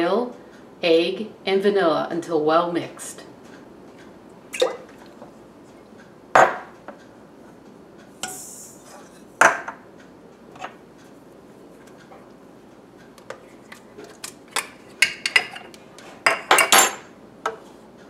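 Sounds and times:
dishes and utensils clacking: 0:13.3 - 0:17.6.

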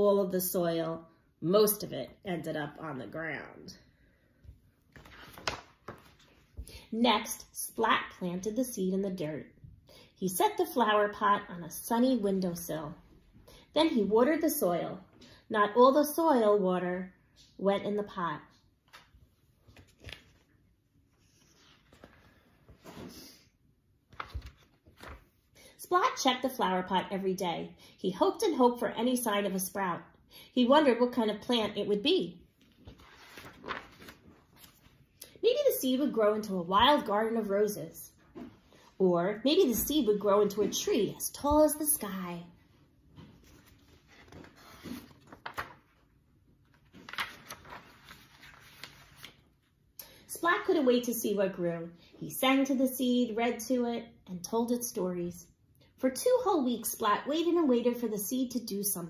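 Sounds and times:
paper page turning: 0:04.9 - 0:06.6, 0:18.9 - 0:23.1, 0:24.1 - 0:25.3, 0:32.6 - 0:35.0, 0:43.2 - 0:49.7.

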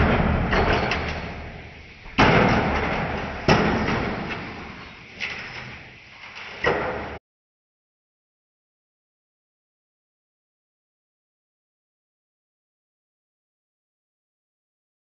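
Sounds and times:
thumps with rumbling tail: 0:00.0 - 0:04.4.

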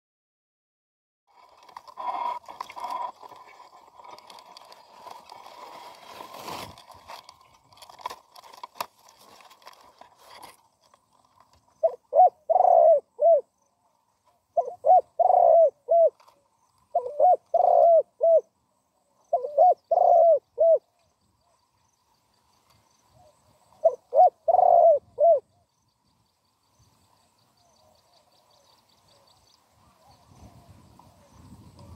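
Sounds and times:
faint rustling: 0:01.3 - 0:11.8
dove cooing: 0:11.8 - 0:13.5, 0:14.5 - 0:18.5, 0:19.1 - 0:21.0, 0:23.1 - 0:25.6.

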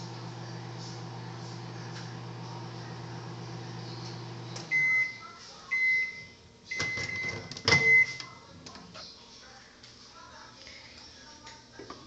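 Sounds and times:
microwave oven humming: 0:00.0 - 0:08.3
microwave beeping: 0:00.0 - 0:08.4.

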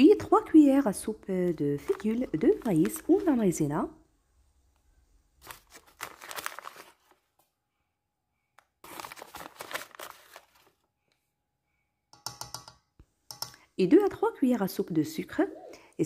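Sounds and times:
paper bag rustling: 0:01.5 - 0:03.6, 0:05.4 - 0:07.4, 0:08.8 - 0:10.9.

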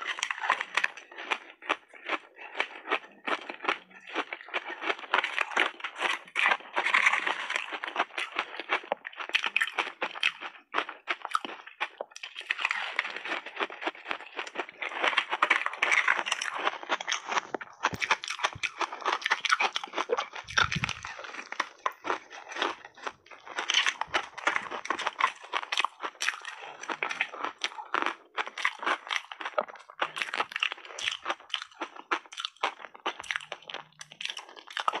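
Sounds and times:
crunching and chewing ice: 0:00.0 - 0:35.0.

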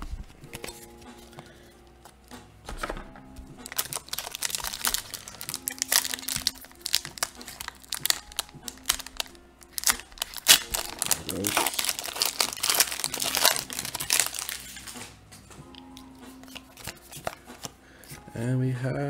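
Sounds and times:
foil wrapper crinkling: 0:03.6 - 0:15.1, 0:16.4 - 0:17.7.

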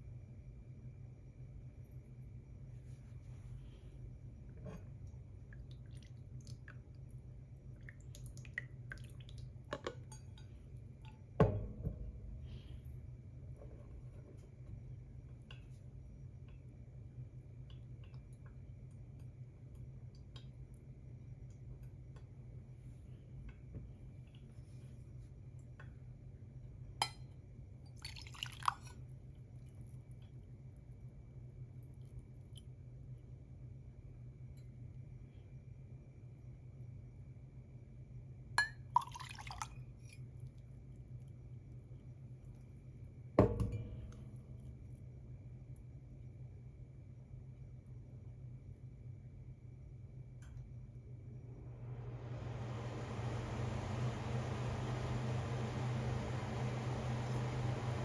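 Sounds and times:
low steady hum: 0:00.0 - 0:58.0
faint water drips: 0:04.5 - 0:11.4, 0:14.4 - 0:26.1, 0:27.0 - 0:33.0, 0:38.6 - 0:42.9
glass clinking: 0:09.8 - 0:11.7, 0:38.6 - 0:39.0.

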